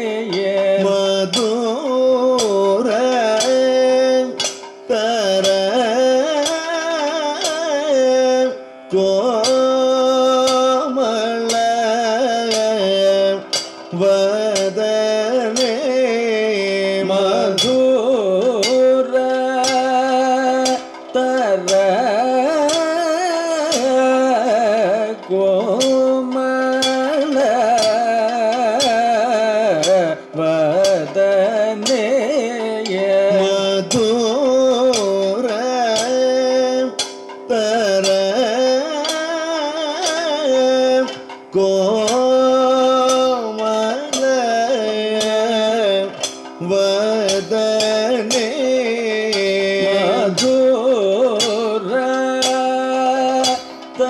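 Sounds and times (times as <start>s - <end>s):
singer holding ornamented notes: 0.0s - 54.0s
sharp percussion strokes: 16.7s - 54.0s.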